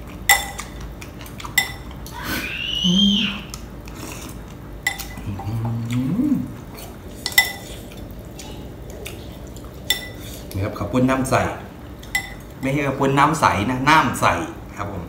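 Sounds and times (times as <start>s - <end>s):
spoon clinking on ceramic bowl: 0.3s - 0.8s, 1.6s - 1.9s, 4.8s - 5.4s, 9.9s - 10.2s, 12.0s - 12.4s
person humming mm: 2.2s - 4.1s, 5.2s - 6.9s.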